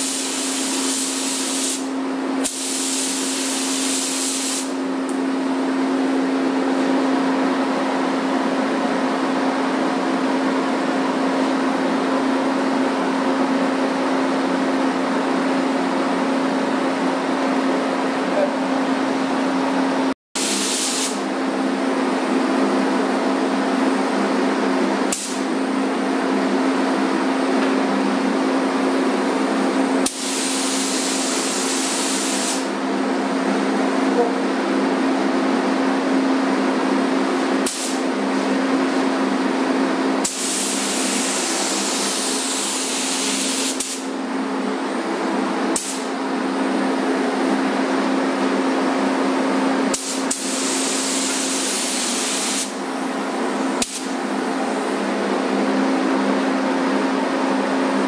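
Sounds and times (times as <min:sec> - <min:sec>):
paint spray gun hissing: 0:00.0 - 0:04.8, 0:20.4 - 0:21.2, 0:30.0 - 0:32.7, 0:40.2 - 0:44.0, 0:49.9 - 0:52.8, 0:53.8 - 0:54.2.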